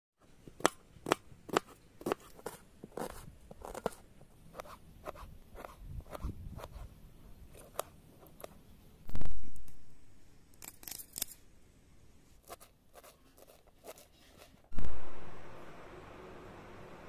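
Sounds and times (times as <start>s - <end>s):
knife slicing vegetables: 0.6s - 6.9s.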